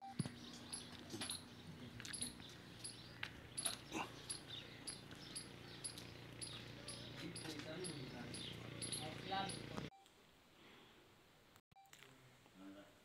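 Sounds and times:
high animal chirps: 0.6 - 9.8.

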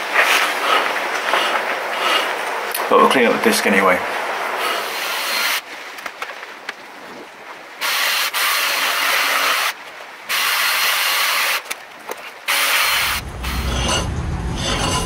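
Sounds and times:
brake disc scrubbing: 12.8 - 15.0.

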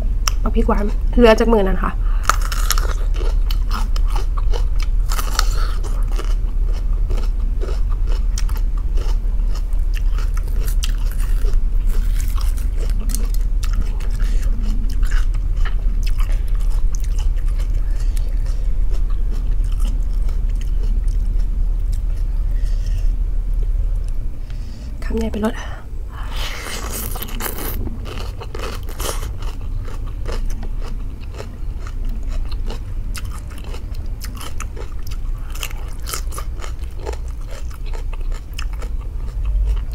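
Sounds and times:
steady low hum: 0.0 - 39.9
crunchy chewing of bell pepper: 2.2 - 23.2, 26.4 - 39.9.

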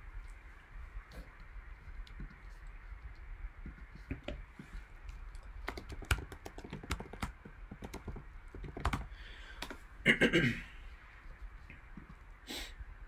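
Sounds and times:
computer keyboard typing: 5.3 - 9.8.

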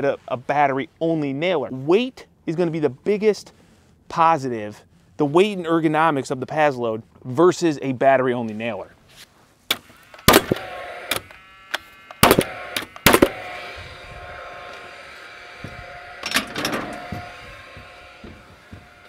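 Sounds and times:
nail gun firing into wood: 9.7 - 11.3, 12.1 - 13.5.

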